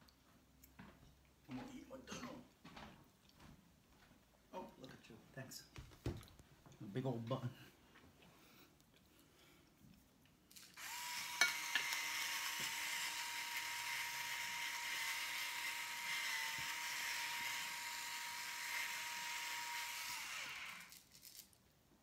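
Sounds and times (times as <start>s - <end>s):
electric pepper grinder running: 10.6s - 21.2s.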